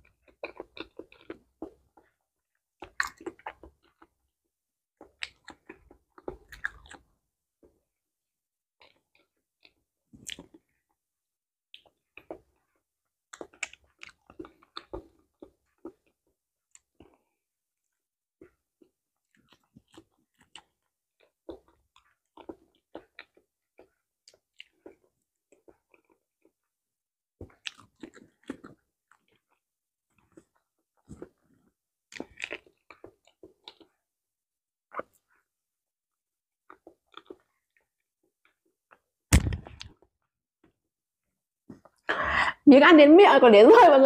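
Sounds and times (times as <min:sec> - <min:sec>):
person chewing and smacking: 0:00.0 - 0:04.3, 0:05.0 - 0:07.9, 0:08.8 - 0:11.0, 0:11.7 - 0:26.8, 0:27.4 - 0:34.1, 0:34.8 - 0:35.5, 0:36.6 - 0:40.0.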